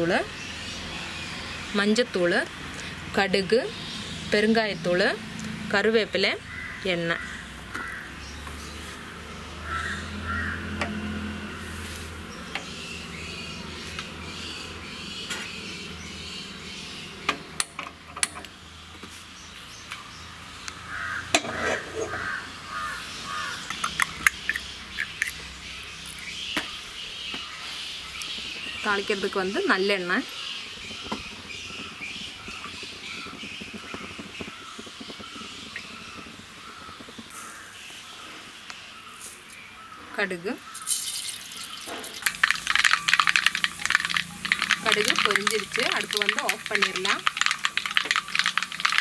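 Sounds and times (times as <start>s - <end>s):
birds chirping: 0.0s - 49.0s
oil trickling and gurgling: 40.7s - 49.0s
sharp clicks: 42.2s - 49.0s.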